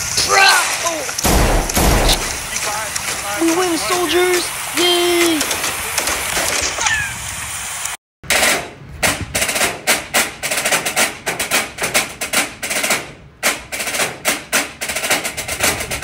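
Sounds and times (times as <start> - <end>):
volleys of sharp bangs: 0.0 - 3.9.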